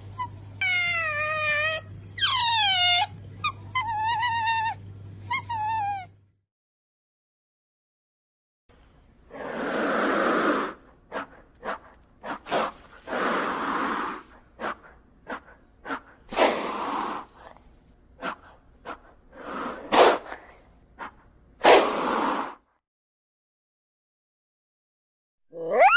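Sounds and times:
sharp puffs of breath: 0:09.3 - 0:17.5, 0:18.2 - 0:22.6
lizard hissing: 0:09.3 - 0:17.6, 0:18.2 - 0:22.7.

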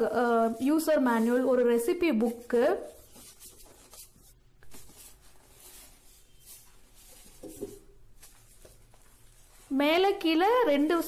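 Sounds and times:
foam packing rustling: 0:00.2 - 0:10.6.

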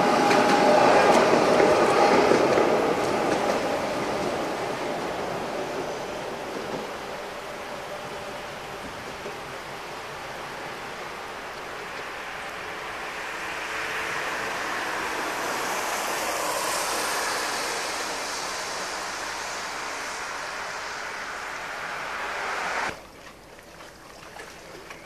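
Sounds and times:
vehicle passing by: 0:12.1 - 0:23.0.

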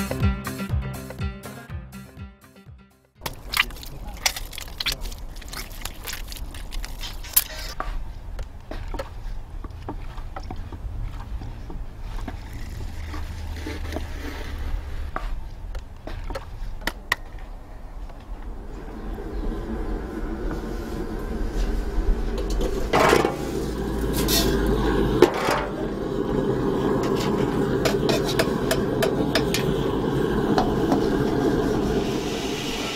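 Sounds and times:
wet clay clicks and slaps: 0:03.2 - 0:07.2
potter's wheel rumble: 0:18.1 - 0:32.7.

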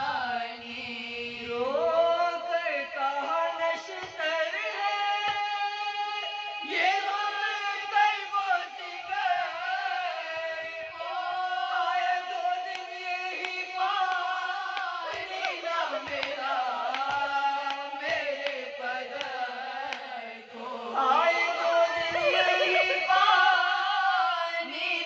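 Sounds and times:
women singing unaccompanied: 0:00.0 - 0:25.0.

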